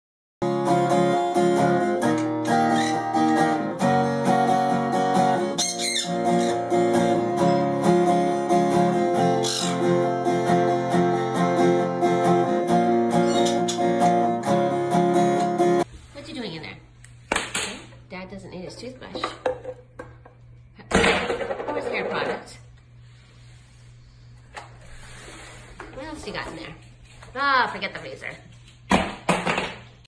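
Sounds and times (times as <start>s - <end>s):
acoustic guitar strumming: 0.4s - 15.8s.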